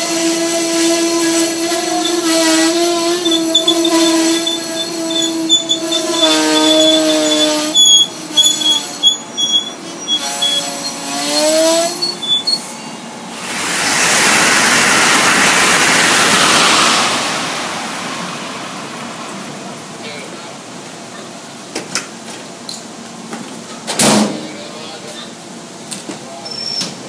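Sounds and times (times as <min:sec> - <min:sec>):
train wheels squealing on rails: 0:01.9 - 0:13.1, 0:26.3 - 0:27.0
loud rushing hiss: 0:13.2 - 0:21.1.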